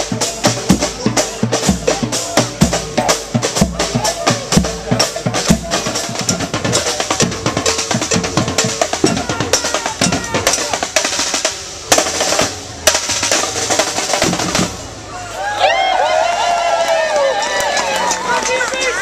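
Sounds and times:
heavy drum accent hits: 0.0s - 15.0s
group of drummers playing: 0.0s - 15.1s.

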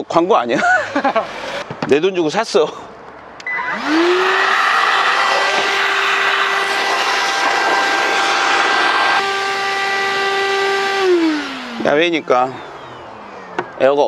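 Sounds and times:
vacuum motor whining: 3.4s - 13.8s.

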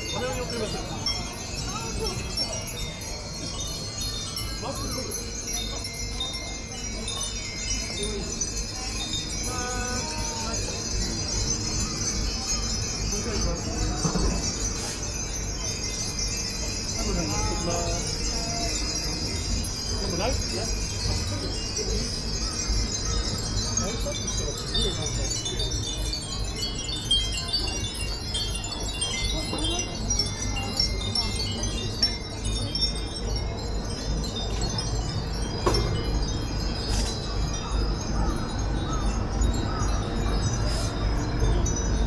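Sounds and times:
wind bells ringing: 0.0s - 42.0s.

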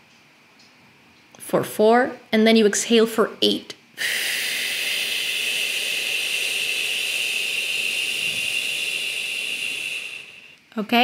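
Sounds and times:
slow exhale through lips: 4.0s - 10.6s.

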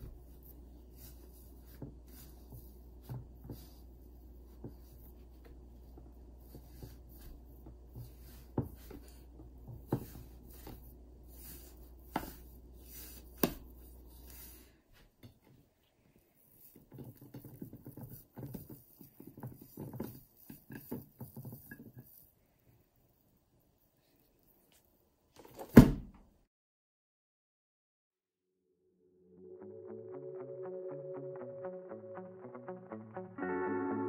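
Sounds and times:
dough rustling and patting: 0.0s - 22.3s.

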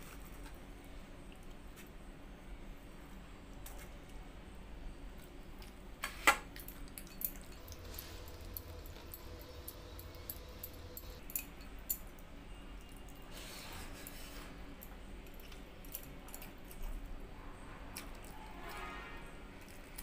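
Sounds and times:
chewing and squishing wet rice: 17.9s - 18.5s.

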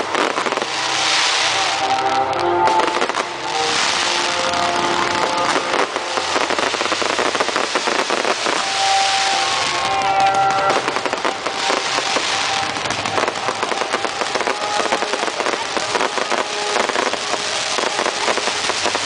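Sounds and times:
fireworks crackling: 0.0s - 19.0s.

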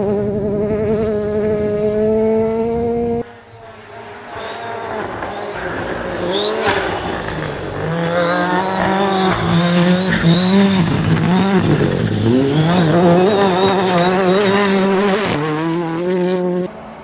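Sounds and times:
rally car engine revving: 0.0s - 17.0s
gravel under tyres: 3.2s - 16.1s.

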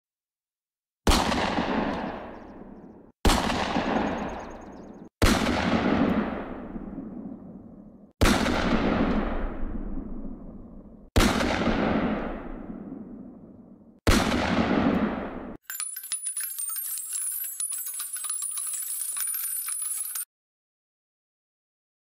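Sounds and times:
echoing gunshots: 1.1s - 15.6s.

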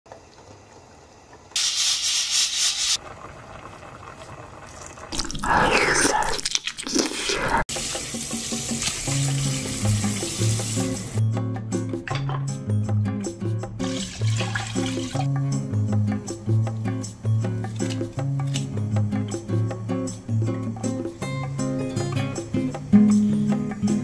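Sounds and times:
tap water running into a sink: 7.7s - 11.2s, 13.8s - 15.3s
background music with bass line: 9.2s - 24.0s.

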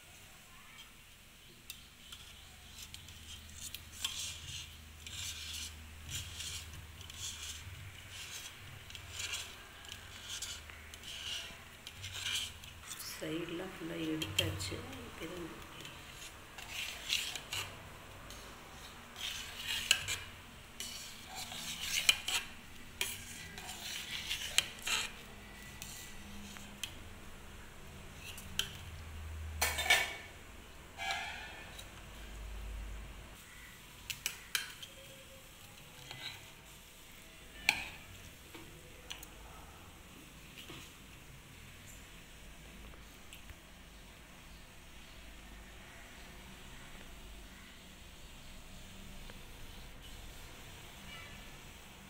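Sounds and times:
metal spatula scraping steel pot: 1.7s - 27.0s, 28.2s - 28.8s, 29.6s - 30.3s, 31.0s - 32.0s, 35.9s - 36.5s, 37.6s - 38.1s.

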